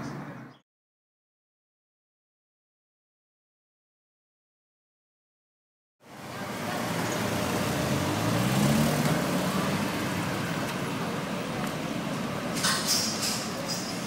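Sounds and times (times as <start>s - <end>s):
city traffic hum: 0.0s - 0.6s, 6.0s - 14.0s
car engine passing: 6.1s - 14.0s.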